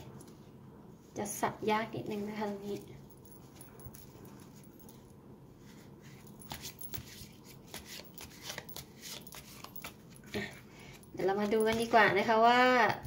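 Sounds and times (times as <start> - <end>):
cards being shuffled: 6.4 - 10.3.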